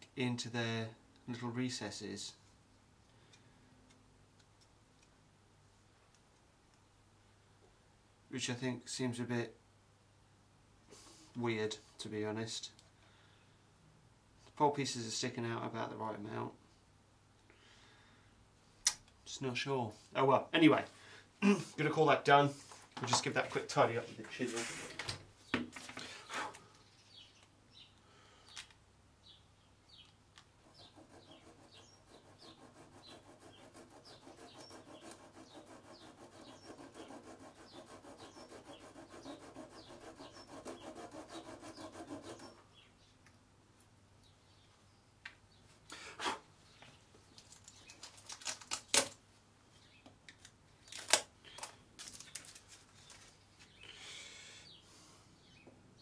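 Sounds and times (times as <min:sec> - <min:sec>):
chisel scraping wood: 0:30.6 - 0:42.6.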